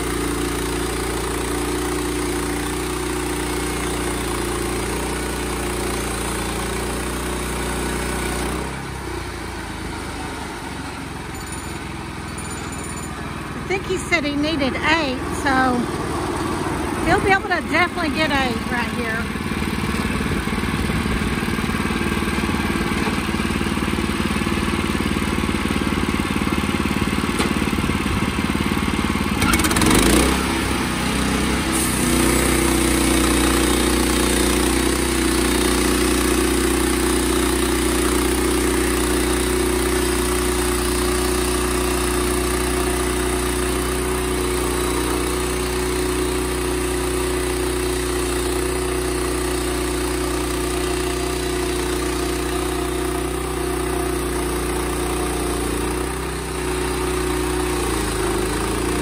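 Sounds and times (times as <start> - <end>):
sawmill engine cutting log: 0.0 - 12.3, 13.2 - 59.0.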